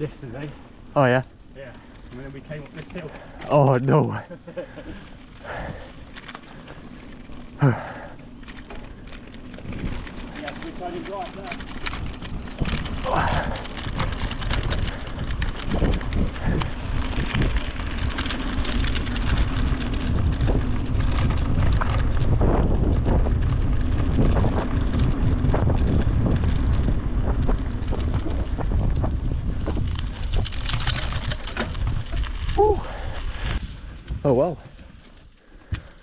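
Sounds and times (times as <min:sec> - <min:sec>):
bike tyres rumbling on gravel: 0:00.0 - 0:36.0
bike rattles and knocks: 0:01.4 - 0:32.9, 0:33.6 - 0:36.0
wind buffeting microphone: 0:08.8 - 0:35.0.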